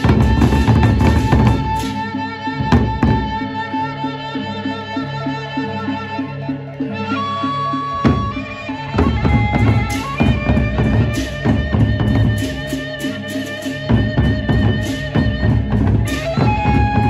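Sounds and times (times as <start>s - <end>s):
barrel drums beaten with sticks: 0.0s - 2.0s, 9.0s - 12.8s, 13.8s - 17.0s.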